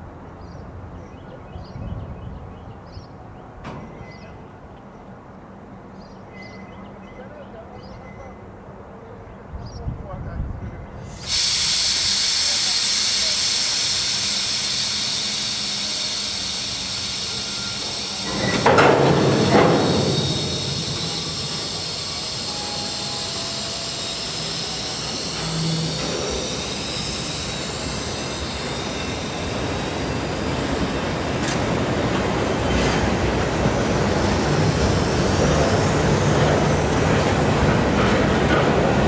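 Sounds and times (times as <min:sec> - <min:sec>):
train wheels rolling on rails: 0:11.0 - 0:39.0.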